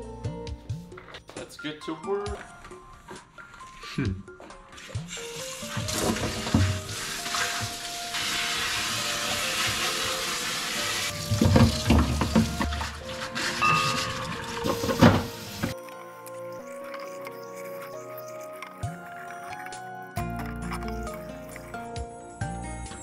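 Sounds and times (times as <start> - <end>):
tap running into sink: 5.7 - 10.4, 11.0 - 15.8
dishes clattering in sink: 5.8 - 6.9, 11.2 - 15.8.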